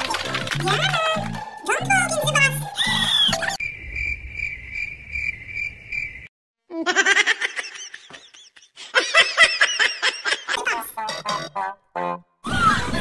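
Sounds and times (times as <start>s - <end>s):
high pulsing chirp: 2.8s - 6.3s
high-pitched giggling laughter: 6.7s - 11.5s.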